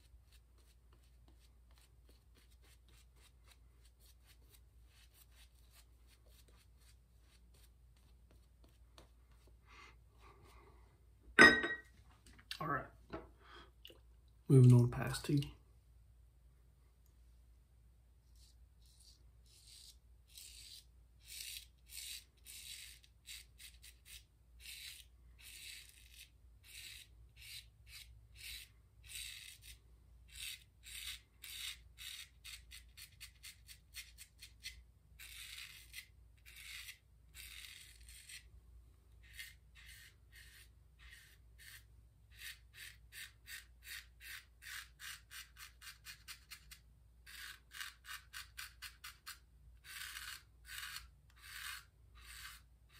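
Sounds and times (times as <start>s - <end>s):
razor scraping stubble: 18.4s - 38.5s, 39.2s - 52.7s.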